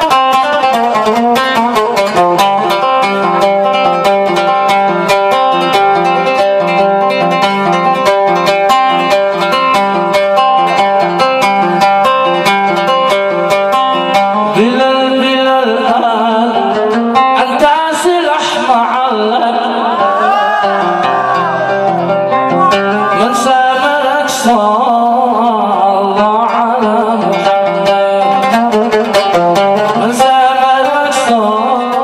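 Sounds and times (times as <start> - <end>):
oud plucked melody: 0.0 - 32.0
man singing: 13.9 - 32.0.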